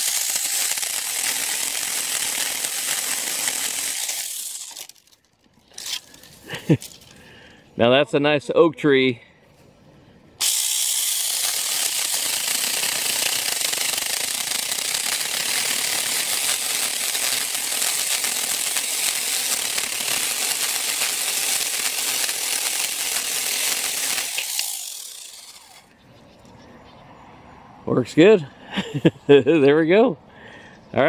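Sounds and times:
mini chainsaw cutting wood: 0.0 - 6.1, 10.4 - 25.9.

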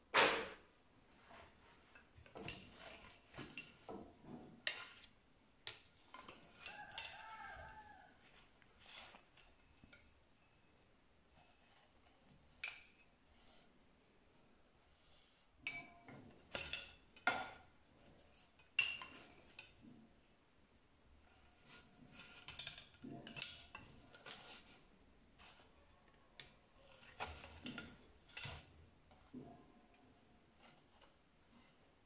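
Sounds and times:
wooden sticks knocking and clicking: 1.9 - 10.1, 21.7 - 24.8.

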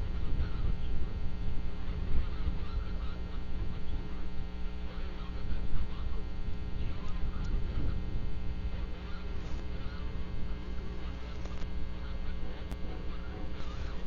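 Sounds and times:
electrical hum: 0.0 - 14.0
faint chirp-like calls: 1.8 - 4.2, 8.8 - 14.0.

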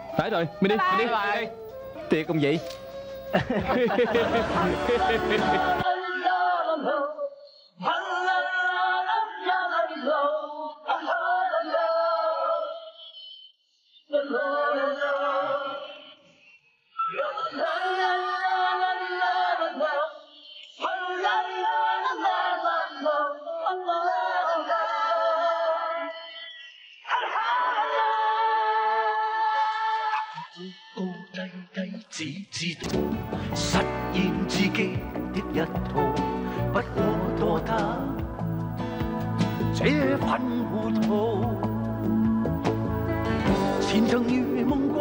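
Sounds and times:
noisy scene sound: 0.0 - 5.9, 32.8 - 45.0
person singing theme song: 0.0 - 7.1, 32.7 - 45.0.

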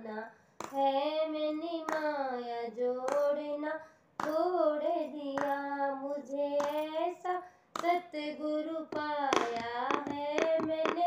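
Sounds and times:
woman singing devotional song: 0.0 - 11.0
hand claps: 0.6 - 0.9, 1.9 - 2.2, 3.0 - 3.4, 4.2 - 4.6, 5.3 - 5.7, 6.6 - 7.0, 7.7 - 8.1, 8.9 - 11.0.

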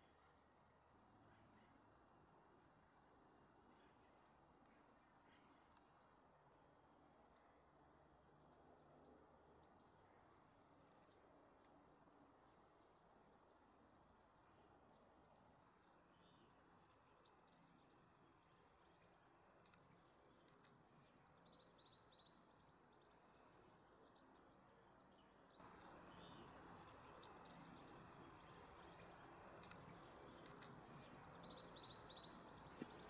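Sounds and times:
songbirds chirping: 0.0 - 33.0
background hiss: 9.8 - 33.0.

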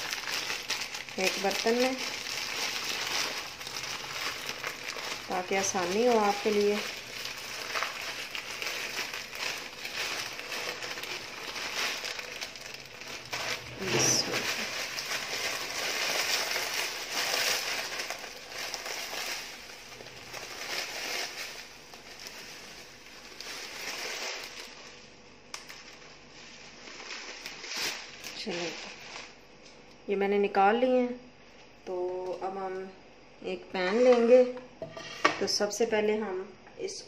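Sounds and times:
plastic packet crinkling: 0.0 - 29.4
dry strands rustling as they fall: 0.0 - 29.8.

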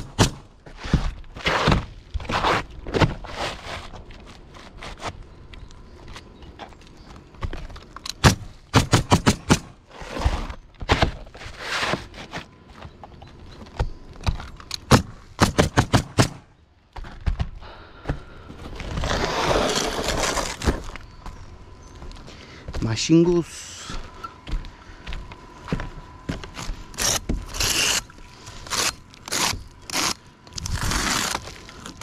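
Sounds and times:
rough scraping: 0.7 - 5.2, 9.8 - 12.5, 18.6 - 21.0, 26.5 - 32.0
nails hammered into roof decking: 8.2 - 9.7, 14.9 - 16.4.

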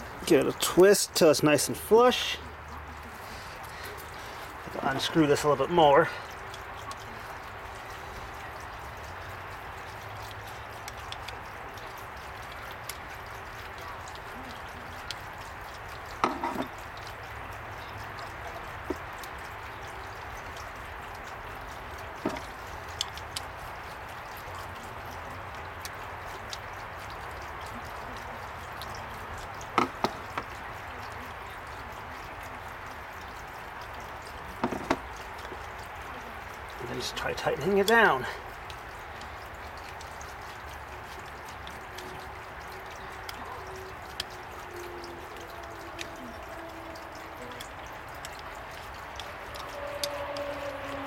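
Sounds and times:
metal fitting clicks and knocks: 16.2 - 16.8, 29.6 - 30.5, 34.6 - 35.1.

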